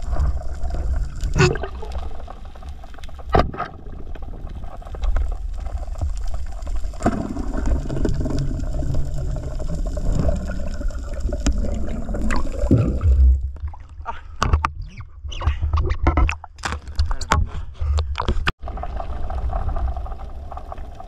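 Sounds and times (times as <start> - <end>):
water rushing and gurgling: 0.0 - 14.4.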